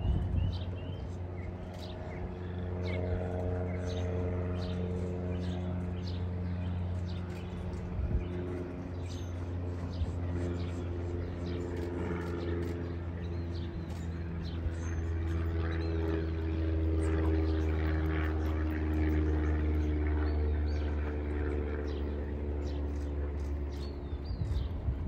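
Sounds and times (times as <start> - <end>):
birds chirping: 0.0 - 25.0
low engine drone: 0.0 - 25.0
pitched hum: 0.0 - 25.0.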